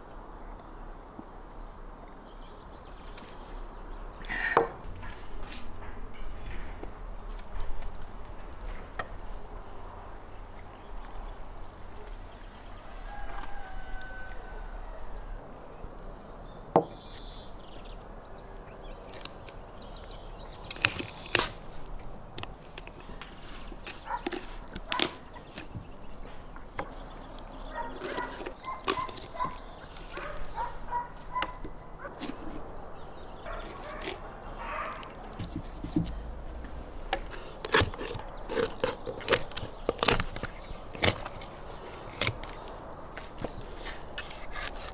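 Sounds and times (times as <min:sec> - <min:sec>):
animal calls: 0:27.6 - 0:32.6.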